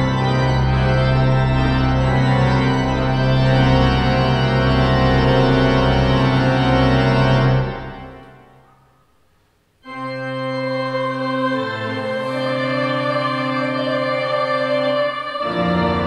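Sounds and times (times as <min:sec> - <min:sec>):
church organ chords: 0:00.0 - 0:08.7, 0:09.8 - 0:16.0.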